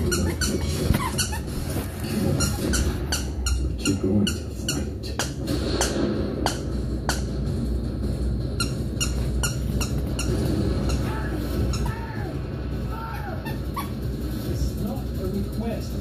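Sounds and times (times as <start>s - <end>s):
squeaky toy squeaking: 0.0s - 7.3s, 8.5s - 12.1s, 13.1s - 14.2s.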